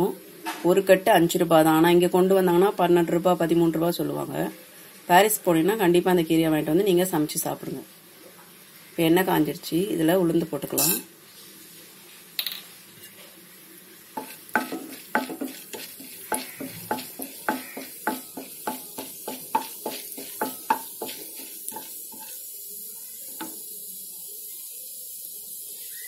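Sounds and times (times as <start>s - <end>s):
oil sizzling: 0.0s - 26.0s
wooden spatula scraping a pan: 14.2s - 22.5s.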